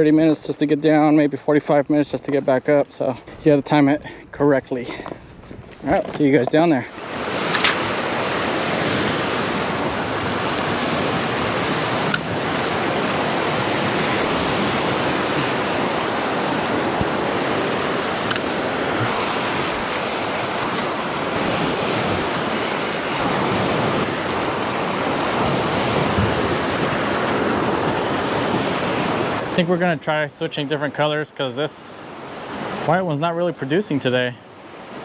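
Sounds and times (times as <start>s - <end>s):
surf washing on rocks: 0.0s - 35.0s.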